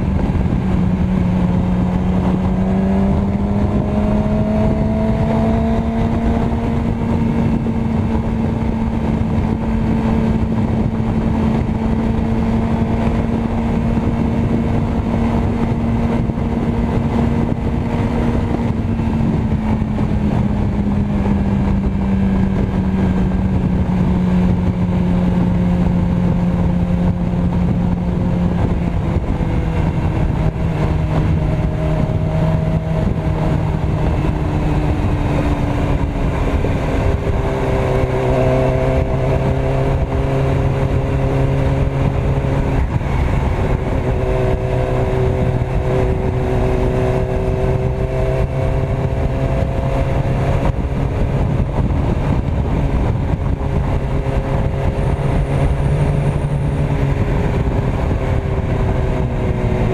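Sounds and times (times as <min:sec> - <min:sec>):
motorcycle engine cruising: 0:00.0 - 0:59.9
wind rush: 0:00.0 - 0:59.9.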